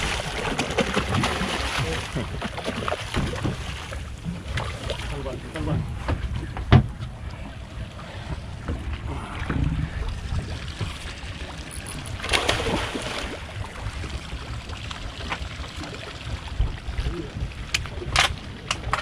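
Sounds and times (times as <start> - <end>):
water splash: 0.0 - 5.3, 10.7 - 17.2
water sloshing against boat: 0.0 - 19.0
low rumble: 3.2 - 19.0.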